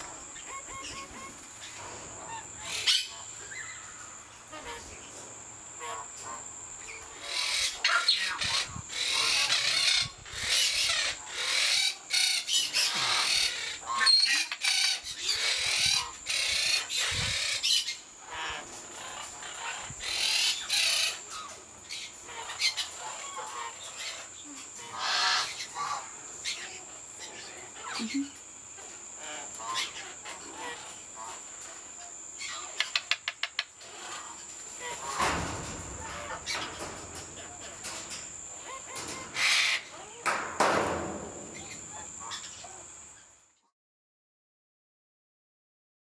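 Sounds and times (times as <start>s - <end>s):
parrots squawking: 0.3s - 3.9s, 7.2s - 28.4s, 29.2s - 31.5s, 32.4s - 40.2s.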